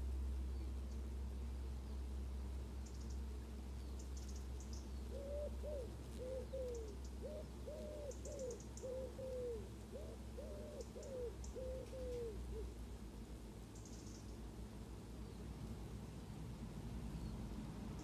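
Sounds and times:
bird cooing: 0:04.2 - 0:12.8.

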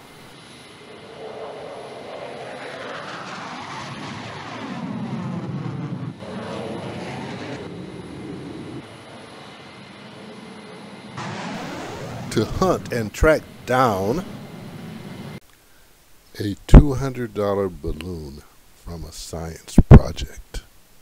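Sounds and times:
jet fighter flying past: 0:00.1 - 0:15.4.

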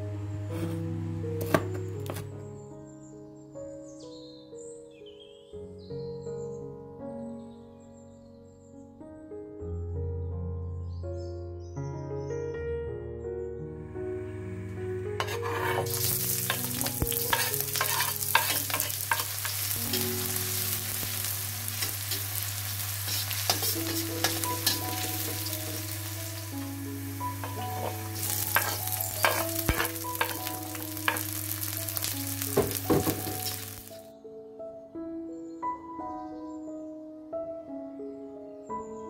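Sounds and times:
soft background music: 0:00.0 - 0:39.0
metal spatula scraping wok: 0:15.2 - 0:26.6, 0:27.3 - 0:33.9
shallots sizzling in hot oil: 0:15.2 - 0:34.0.

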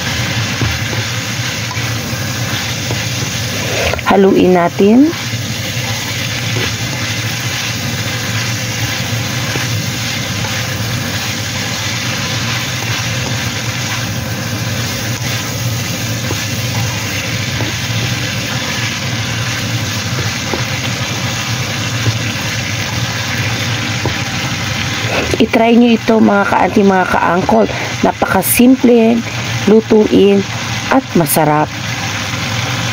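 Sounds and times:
spatula scraping and tossing: 0:00.0 - 0:25.5
food sizzling in a wok: 0:00.0 - 0:32.9
low machine hum: 0:00.0 - 0:32.9.

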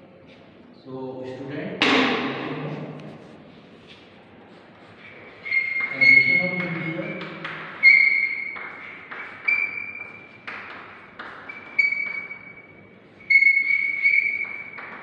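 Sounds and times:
high chalk squeal: 0:05.0 - 0:15.0.

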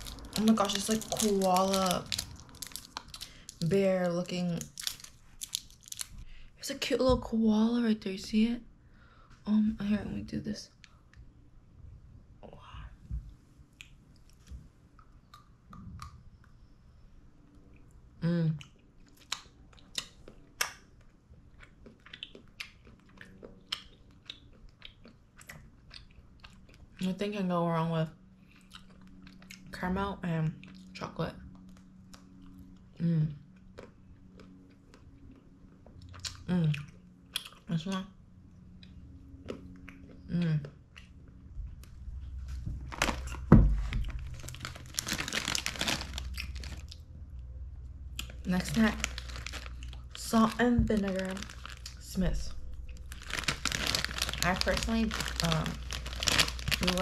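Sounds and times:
person chewing: 0:00.0 - 0:03.6, 0:04.6 - 0:06.2, 0:18.6 - 0:27.0, 0:28.4 - 0:29.7, 0:33.5 - 0:37.6, 0:43.0 - 0:47.0, 0:48.1 - 0:50.2, 0:52.7 - 0:57.0
foil chip packet crinkling: 0:00.0 - 0:06.2, 0:42.9 - 0:47.0, 0:48.2 - 0:57.0.

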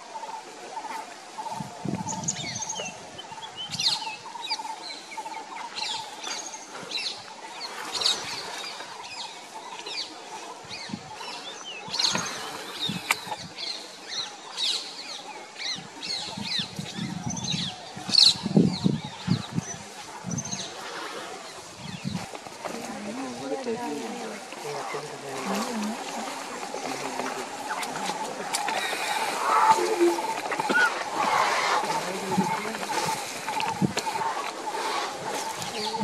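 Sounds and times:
birds chirping and calling: 0:00.2 - 0:36.0.

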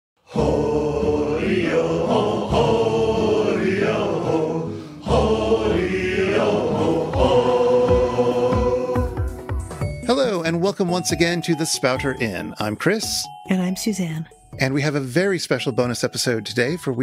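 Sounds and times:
choir-like voices chanting: 0:00.2 - 0:09.4.

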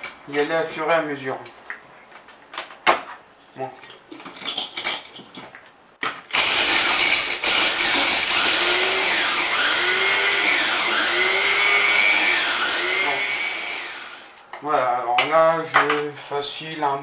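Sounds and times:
electric food chopper whining: 0:06.3 - 0:14.4.

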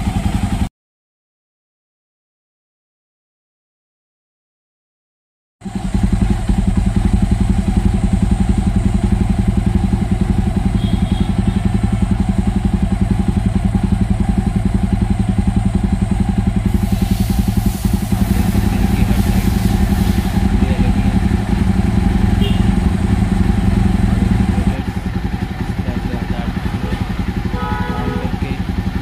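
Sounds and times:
motorcycle engine idling: 0:00.0 - 0:00.7, 0:05.6 - 0:29.0
hiss: 0:16.6 - 0:20.6.

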